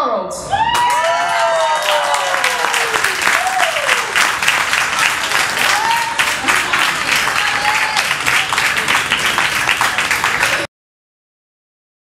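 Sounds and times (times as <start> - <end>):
people whooping and calling out: 0.4 - 4.2, 5.5 - 8.4
audience applauding: 0.7 - 10.7.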